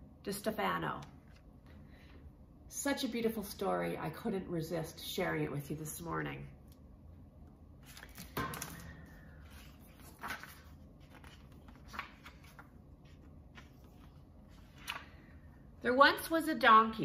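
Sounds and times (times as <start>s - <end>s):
book pages rustling: 7.8s - 15.3s.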